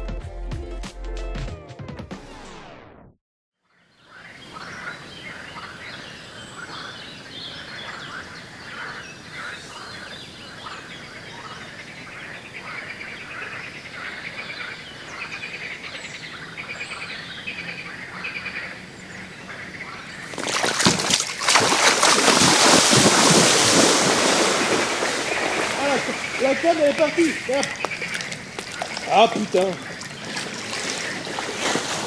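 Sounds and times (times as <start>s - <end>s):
small birds chirping and trilling: 3.7s - 20.8s, 25.1s - 31.7s.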